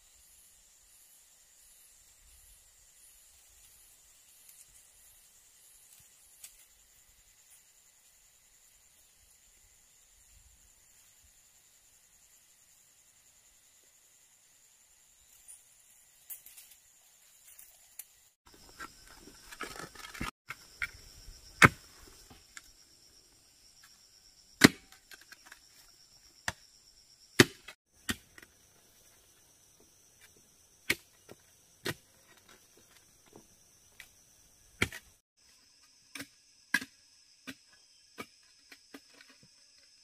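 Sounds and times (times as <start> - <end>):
insects droning: 0.0 - 40.0
digging tool striking earth: 18.5 - 22.6, 24.6 - 25.6, 27.4 - 28.6, 30.8 - 33.0, 34.7 - 35.2.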